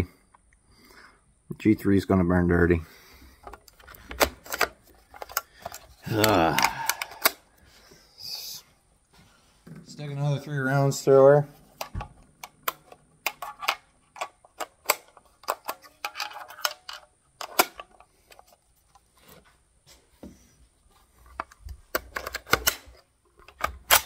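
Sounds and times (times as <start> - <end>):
cartridges clicking into magazine: 11.8 - 18.1, 23.5 - 24.0.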